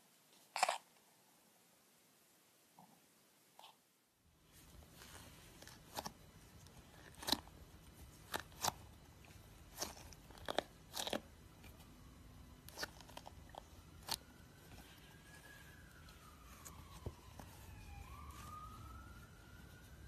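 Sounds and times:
squishy ball crackling: 4.5s - 20.0s.

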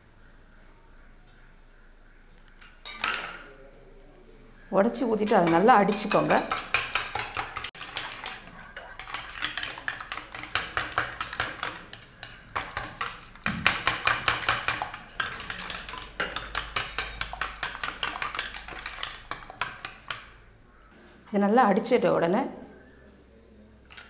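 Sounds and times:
whisk clicking against metal bowl: 5.2s - 20.4s.

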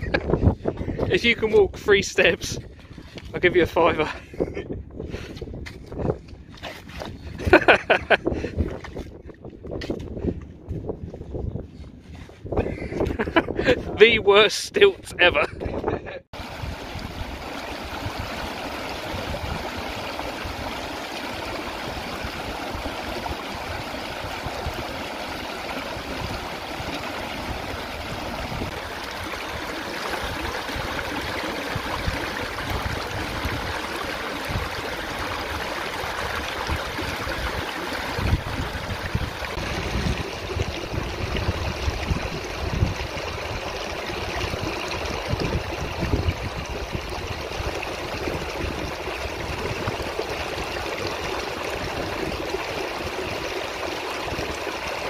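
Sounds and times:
seawater rushing between rocks: 16.4s - 55.0s.

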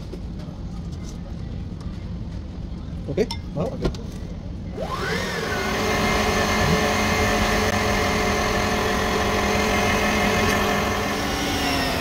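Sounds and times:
stand mixer motor whining: 4.8s - 12.0s
beater mixing in steel bowl: 5.0s - 12.0s.

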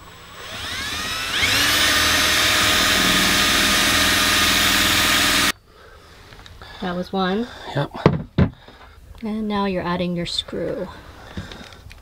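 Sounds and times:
cordless drill whining: 0.0s - 5.5s.

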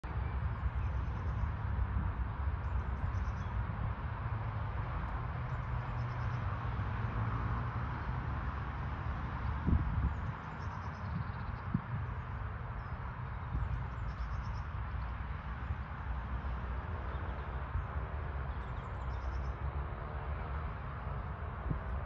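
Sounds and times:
small birds chirping: 9.7s - 15.8s.

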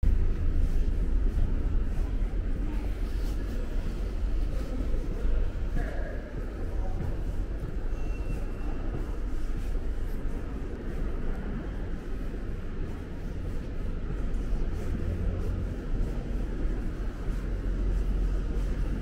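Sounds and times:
low rumble and hum of station hall: 0.0s - 19.0s.

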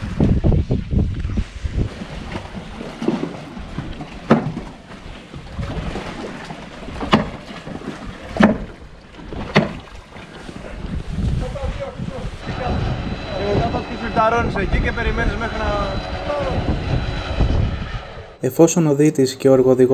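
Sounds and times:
water: 0.0s - 15.5s
wind: 0.0s - 19.9s.

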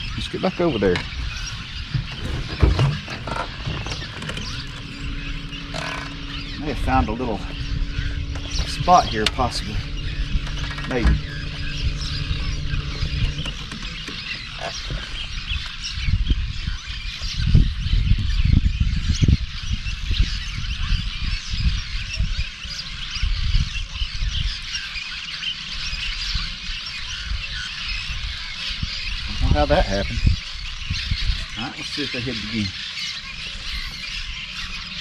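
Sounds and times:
low thumps and rumbles: 0.0s - 22.5s
low steady hum: 0.0s - 24.6s
birds chirping and calling: 0.0s - 35.0s.

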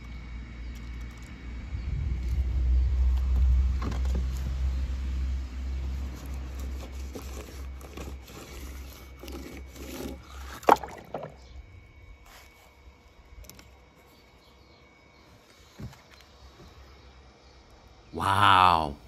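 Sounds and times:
toy car wheels scraping and squishing: 6.1s - 10.6s.

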